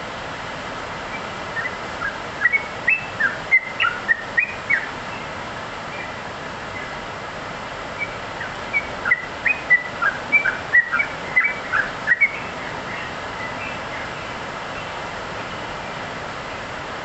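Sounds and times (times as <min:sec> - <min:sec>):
background hiss: 0:00.0 - 0:17.0
bird chirping song: 0:01.1 - 0:05.3, 0:05.9 - 0:07.0, 0:08.0 - 0:15.6.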